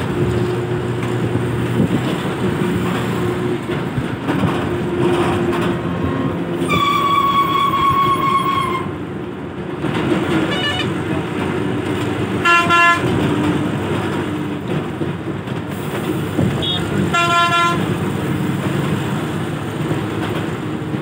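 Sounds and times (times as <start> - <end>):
vehicle engine and tyre rumble: 0.0 - 21.0
vehicle horn honking: 10.5 - 10.9, 12.4 - 13.1, 16.6 - 17.8.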